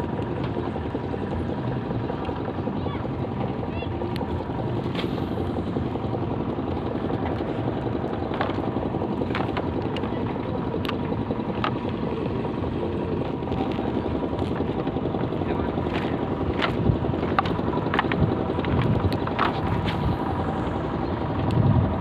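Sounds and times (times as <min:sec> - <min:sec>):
engine drone: 0:00.0 - 0:22.0
wind on microphone: 0:15.5 - 0:22.0.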